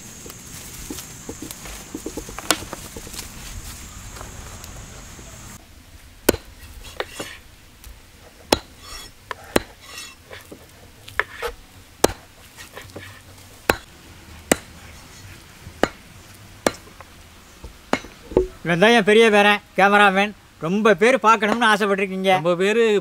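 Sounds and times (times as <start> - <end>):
knife chopping on wood: 8.5 - 10.6, 11.2 - 13.1, 13.7 - 13.9.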